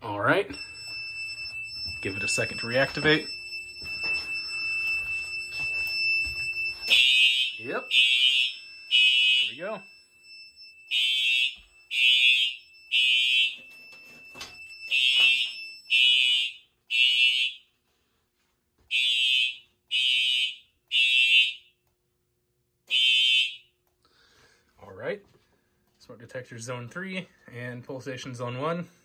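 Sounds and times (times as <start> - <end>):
steady high alarm tone: 0.0 - 18.0, 18.9 - 21.9, 22.9 - 24.6
fire alarm horn beeps: 0.5 - 17.8, 18.9 - 21.8, 22.9 - 23.7.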